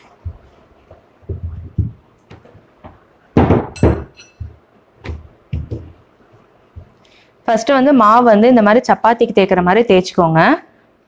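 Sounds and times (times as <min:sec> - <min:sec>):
rolling pin knocking on board: 0:00.2 - 0:06.0.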